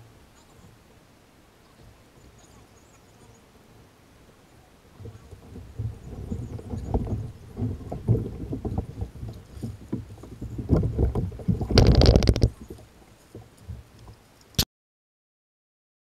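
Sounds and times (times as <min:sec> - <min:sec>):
kayak hull scraping: 0:04.9 - 0:13.9
plastic kayak knocking and bumping: 0:05.4 - 0:12.7.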